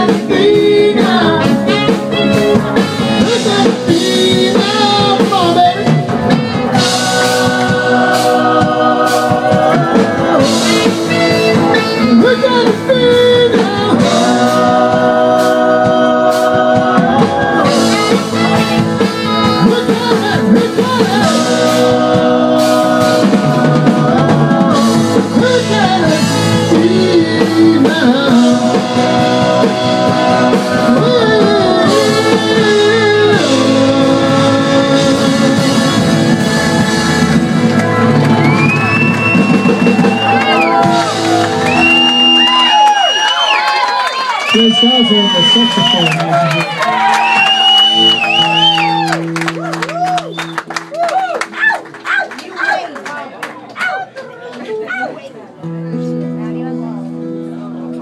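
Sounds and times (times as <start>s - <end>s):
person singing: 0.0s - 38.3s
live band playing: 0.0s - 58.0s.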